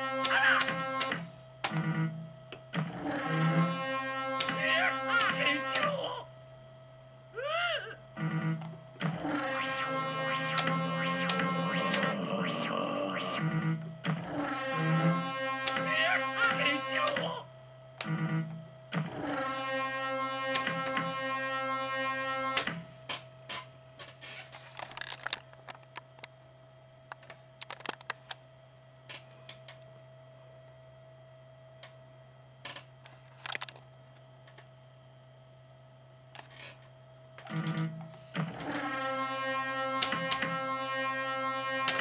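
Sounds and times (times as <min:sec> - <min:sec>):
electronic buzzing tone: 0:00.0 - 0:06.1, 0:08.0 - 0:23.0, 0:37.4 - 0:42.0
low electrical hum: 0:00.0 - 0:42.0.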